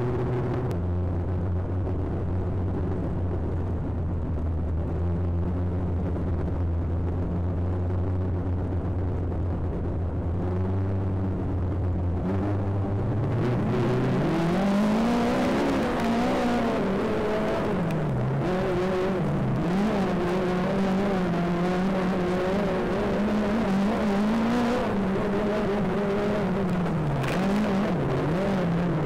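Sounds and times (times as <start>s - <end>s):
race car engine accelerating: 10.3s - 29.0s.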